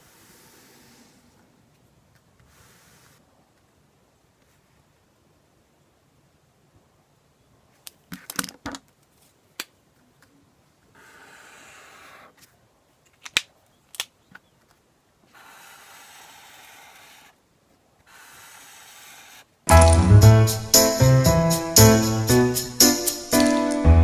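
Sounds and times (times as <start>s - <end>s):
highlighter strokes on paper: 0.0s - 1.4s, 2.4s - 3.3s, 15.3s - 17.4s, 18.0s - 19.5s.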